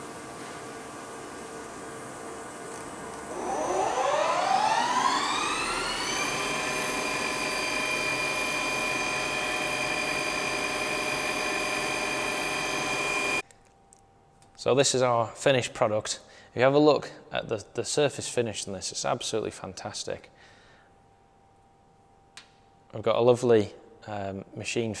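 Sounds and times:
lathe spindle whine: 3.2 - 13.4.

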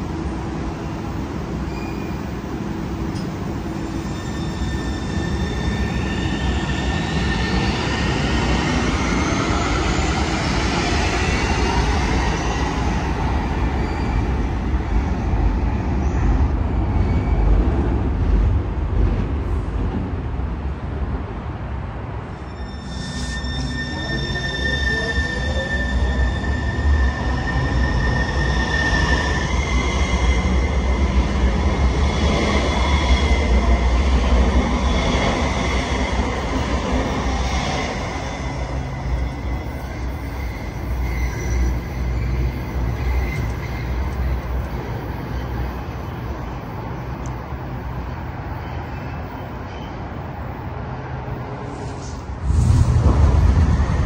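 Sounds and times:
train rumble: 0.0 - 54.0
train wheels squealing: 1.5 - 17.7, 22.3 - 47.3, 48.5 - 50.2
loud low rumble: 52.4 - 54.0.

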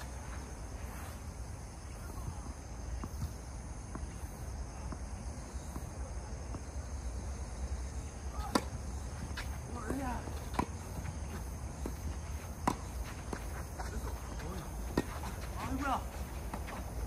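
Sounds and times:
tennis ball bouncing: 8.3 - 17.0.

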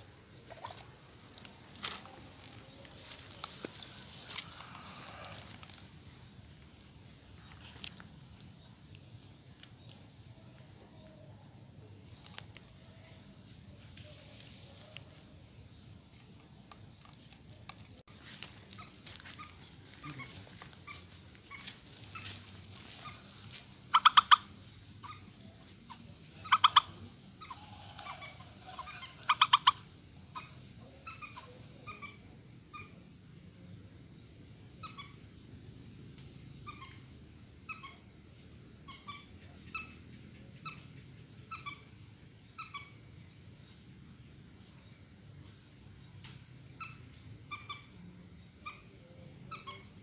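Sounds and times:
swamphen calling: 18.2 - 33.1, 34.7 - 35.4, 36.5 - 43.4, 46.7 - 50.0
rapid harsh bird calls: 18.8 - 33.0.

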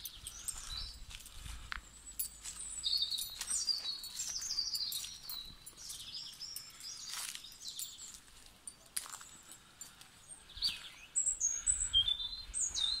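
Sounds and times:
songbirds singing: 0.0 - 13.0.

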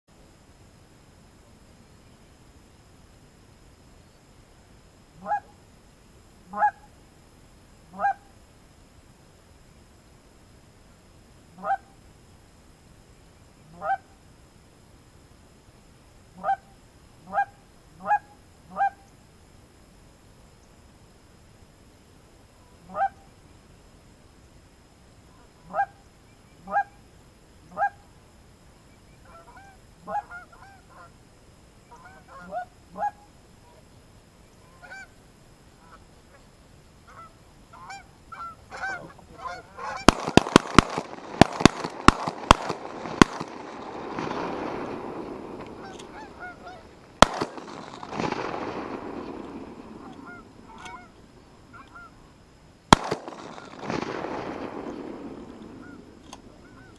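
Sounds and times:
geese honking: 5.2 - 5.5, 6.5 - 6.9, 7.9 - 8.3, 11.6 - 11.9, 13.7 - 14.1, 17.3 - 19.0, 22.8 - 23.2, 25.3 - 26.0, 27.7 - 28.0, 29.2 - 31.1, 31.9 - 33.8, 34.6 - 35.1, 35.8 - 36.4, 37.1 - 52.3, 55.8 - 56.9
shotgun shots: 39.9 - 51.0, 52.9 - 56.2.

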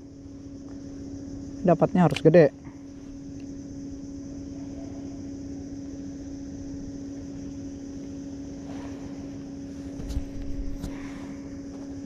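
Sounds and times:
motor humming: 0.0 - 12.0
wind rumble: 8.5 - 12.0.

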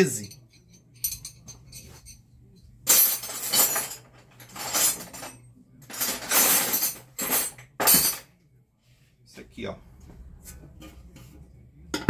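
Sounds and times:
metal tools clattering: 0.0 - 2.2, 2.9 - 8.3.

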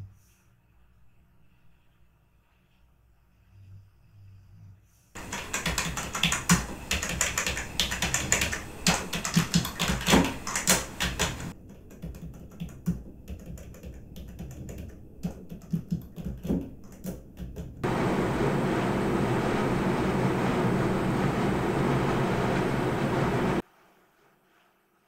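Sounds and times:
fast typing on keyboard: 5.2 - 17.9.

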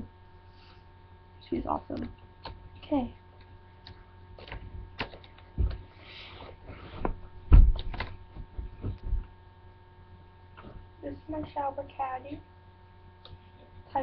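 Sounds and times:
electrical hum: 0.0 - 14.0
objects thumping and knocking: 5.5 - 5.8, 7.0 - 9.3.

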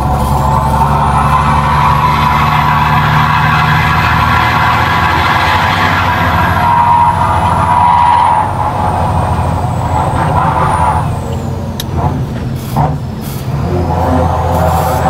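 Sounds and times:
truck diesel engine running: 0.0 - 15.0
air brake hisses: 12.6 - 13.5.

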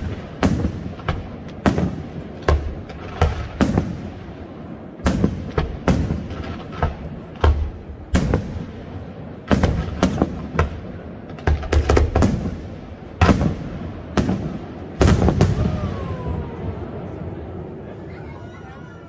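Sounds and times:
firework booms: 0.0 - 18.0.

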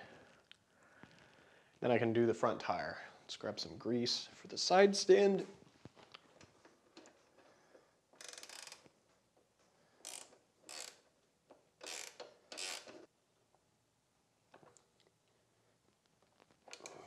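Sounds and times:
ratchet wrench clicking: 8.2 - 8.8, 10.0 - 11.1, 11.8 - 13.1.

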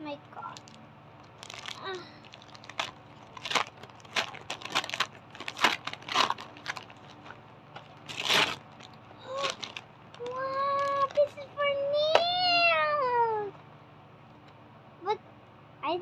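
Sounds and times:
gift wrapping tearing: 0.5 - 11.4.

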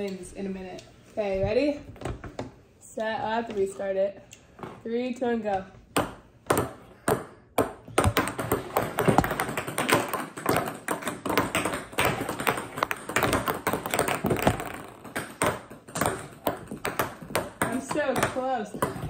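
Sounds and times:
ping-pong balls bouncing on wood: 5.6 - 19.0.

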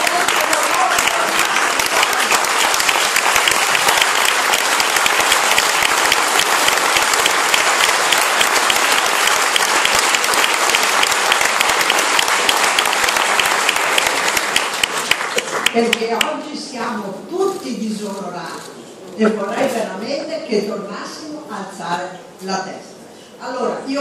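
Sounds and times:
audience applauding: 0.0 - 16.3.

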